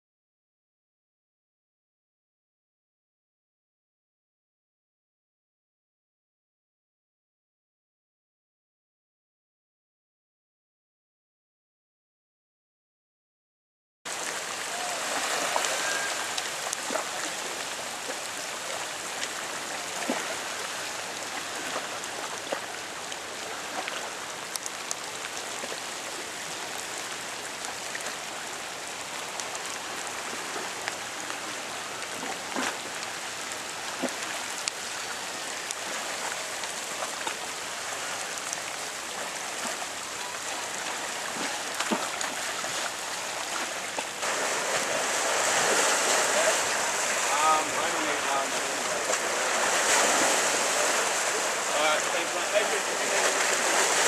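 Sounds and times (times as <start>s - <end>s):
rain falling: 14.1s - 54.0s
raindrops ticking: 15.5s - 20.2s, 21.1s - 42.5s.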